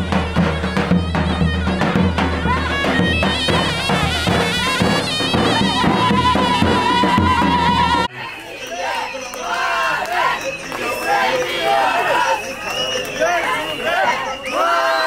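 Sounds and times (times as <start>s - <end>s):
bass drum beaten with stick: 0.0s - 8.1s
shrill reed wind instrument: 0.0s - 15.0s.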